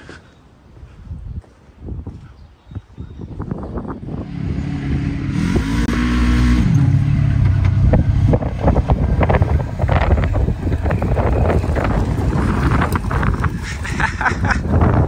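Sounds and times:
wind gusts on microphone: 0:00.7 - 0:15.0
engine revving: 0:04.2 - 0:13.7.

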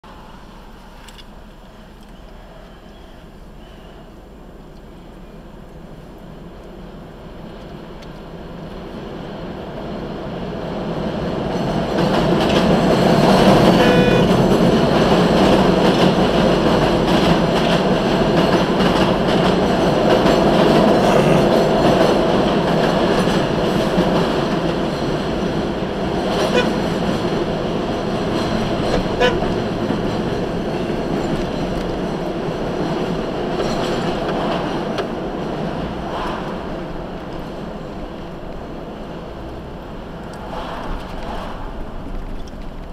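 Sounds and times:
elevated train rumbling overhead: 0:00.0 - 0:42.9
high wheel squeal: 0:13.5 - 0:14.5.

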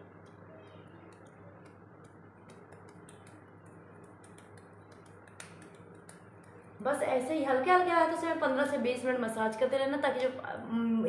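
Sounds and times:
steady low hum: 0:00.0 - 0:10.8
soft clicks from fingertips on skin: 0:01.1 - 0:06.6.

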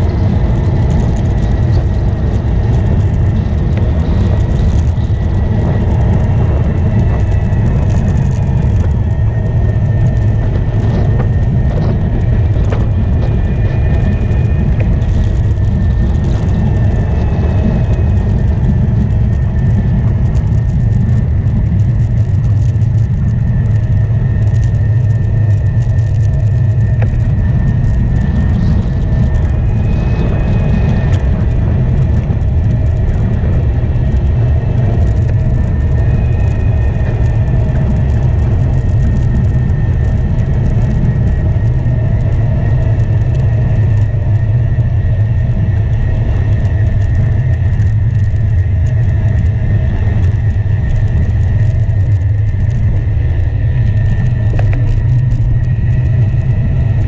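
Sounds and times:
wind rumble on microphone: 0:00.0 - 0:57.0.

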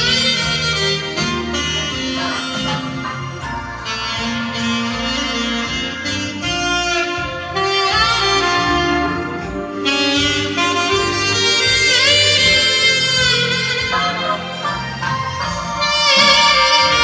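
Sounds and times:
karaoke backing track: 0:00.0 - 0:17.0
saxophone melody: 0:00.0 - 0:17.0.

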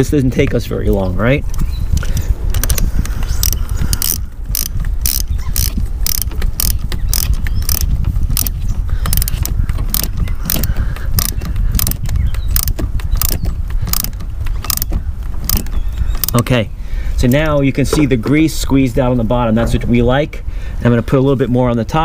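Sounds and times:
steady low hum: 0:00.0 - 0:21.8
socket ratchet clicking: 0:02.0 - 0:16.4.

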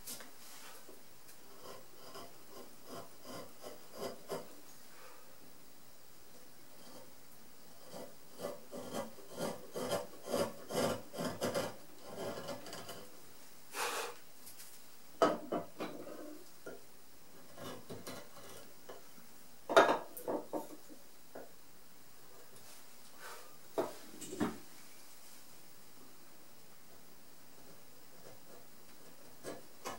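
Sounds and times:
chisel scraping hard wood: 0:07.8 - 0:13.0.

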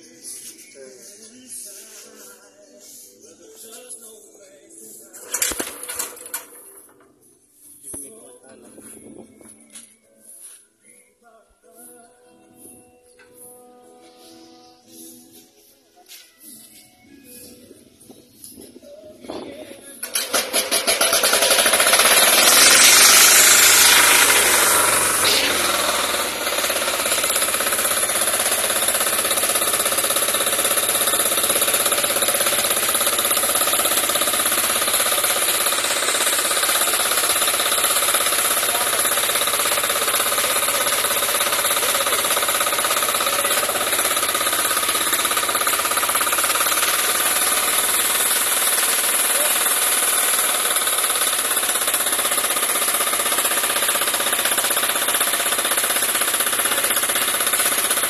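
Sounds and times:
generator engine knocking: 0:05.2 - 0:07.1, 0:20.0 - 0:58.0.

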